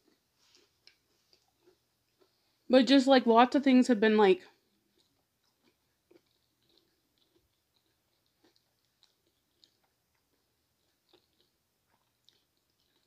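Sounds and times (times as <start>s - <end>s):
soft chewing mouth clicks: 0.0s - 2.6s, 4.5s - 13.0s.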